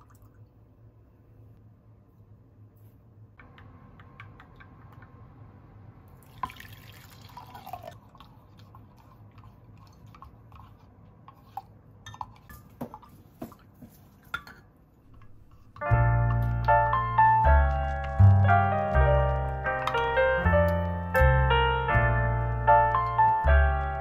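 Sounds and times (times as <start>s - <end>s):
liquid pouring into glass jug: 6.2s - 9.1s
wooden spoon stirring: 8.0s - 20.9s.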